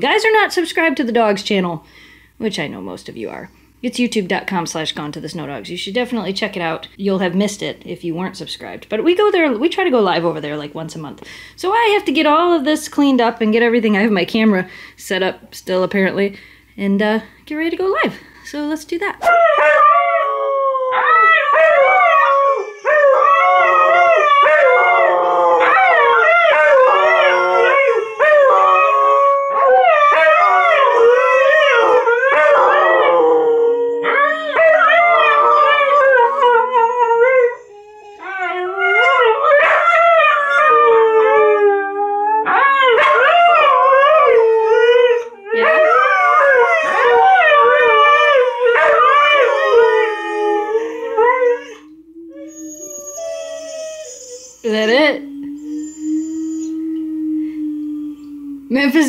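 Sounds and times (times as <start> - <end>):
dogs howling together: 19.3 - 58.7.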